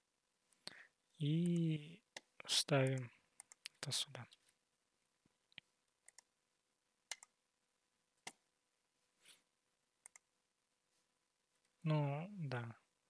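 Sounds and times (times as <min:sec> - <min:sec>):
computer mouse clicks: 0:01.4 - 0:03.8, 0:05.5 - 0:06.3, 0:07.1 - 0:07.4, 0:10.0 - 0:10.3.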